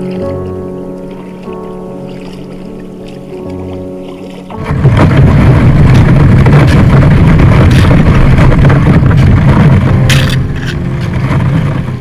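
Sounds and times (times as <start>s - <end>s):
ice crackle: 0.0s - 12.0s
ice grinding against kayak hull: 1.1s - 12.0s.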